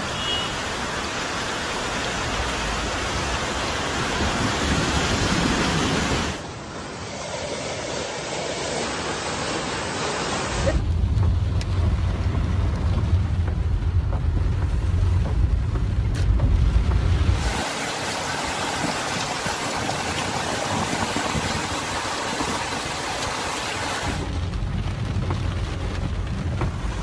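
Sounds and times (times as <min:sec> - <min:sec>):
heavy rain on car: 0:00.0 - 0:06.9, 0:10.3 - 0:27.0
floodwater rushing: 0:00.0 - 0:15.2, 0:16.5 - 0:27.0
car interior rumble: 0:10.6 - 0:17.6, 0:19.1 - 0:27.0.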